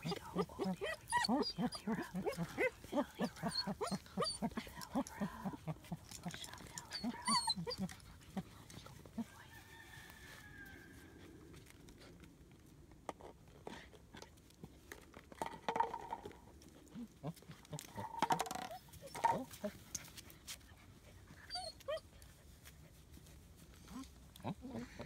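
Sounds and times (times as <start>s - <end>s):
puppies whining and yipping: 0.0s - 8.5s, 21.2s - 22.2s.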